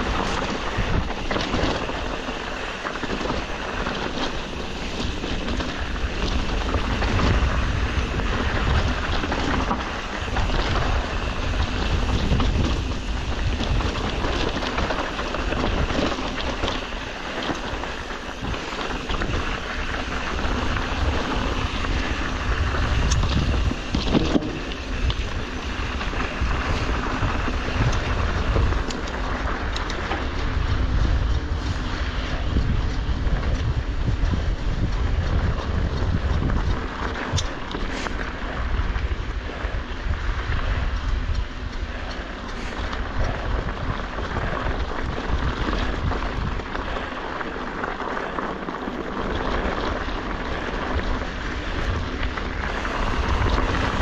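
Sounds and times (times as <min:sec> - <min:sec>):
bike rattling and knocking: 0:00.0 - 0:54.0
wind rushing over microphone: 0:00.0 - 0:54.0.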